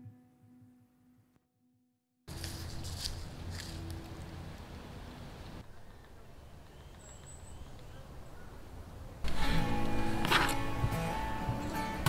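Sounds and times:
acoustic guitar strumming: 0:09.3 - 0:12.0.

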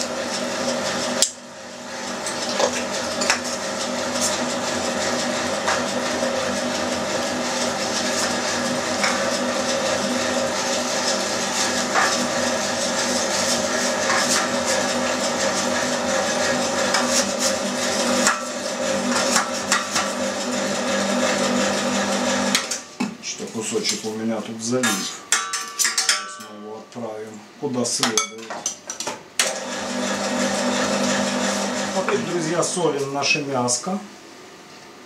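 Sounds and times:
electric meat grinder running: 0:00.0 - 0:22.8, 0:29.4 - 0:32.6.

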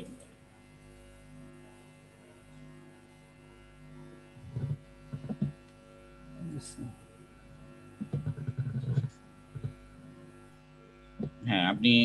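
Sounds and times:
electrical mains hum: 0:00.0 - 0:12.0
faint steady tones: 0:00.0 - 0:12.0
low muffled sounds: 0:08.0 - 0:09.8.

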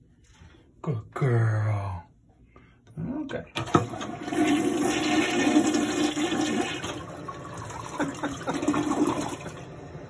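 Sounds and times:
toilet flushing: 0:03.6 - 0:10.0.

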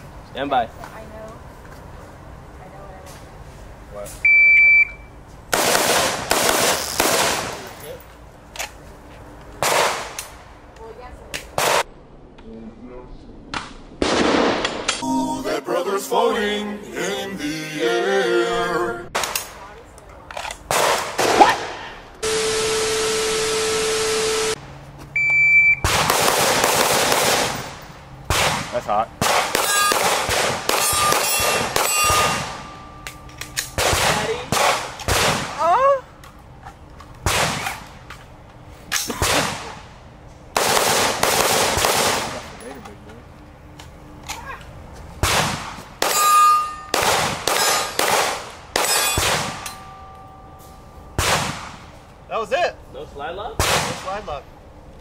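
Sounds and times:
short high beep: 0:04.2 - 0:05.2, 0:15.0 - 0:15.5, 0:22.2 - 0:24.6, 0:25.2 - 0:25.8
gunshots: 0:05.5 - 0:07.7, 0:09.6 - 0:10.2, 0:11.6 - 0:11.9, 0:14.0 - 0:15.0, 0:20.7 - 0:24.6, 0:25.8 - 0:32.7, 0:33.7 - 0:35.7, 0:37.2 - 0:37.9, 0:39.1 - 0:39.8, 0:40.5 - 0:42.6, 0:45.2 - 0:46.2, 0:46.9 - 0:49.7, 0:51.2 - 0:51.9, 0:53.6 - 0:54.2.

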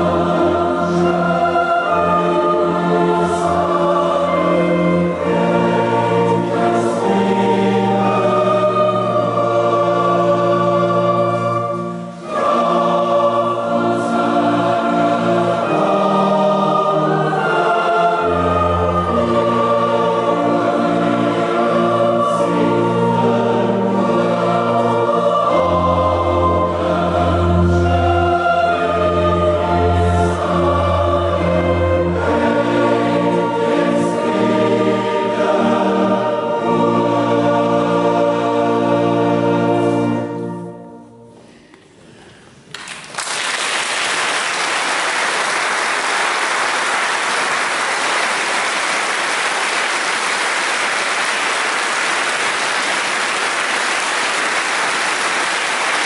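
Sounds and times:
choir singing sustained chords: 0:00.0 - 0:41.7
audience applause: 0:42.7 - 0:56.0.

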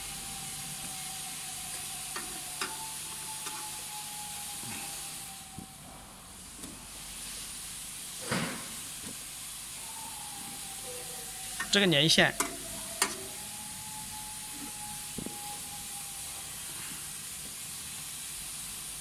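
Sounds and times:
faint high whine: 0:00.0 - 0:06.8, 0:09.6 - 0:17.2
background hiss: 0:00.0 - 0:19.0.

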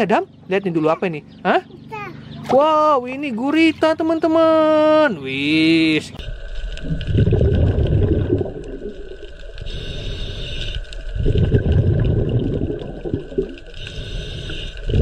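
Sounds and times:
rumbling underwater water noise: 0:05.6 - 0:15.0.

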